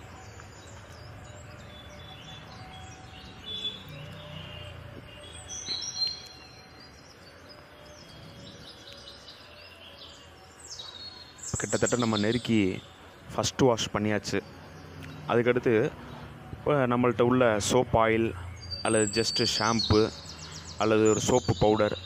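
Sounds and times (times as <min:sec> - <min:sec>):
birds chirping: 0:00.0 - 0:22.0.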